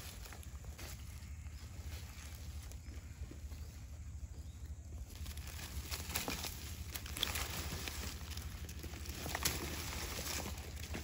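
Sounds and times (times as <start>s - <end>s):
rustling of dry leaves and gravel: 0.0s - 11.0s
carcass being dragged: 5.2s - 11.0s.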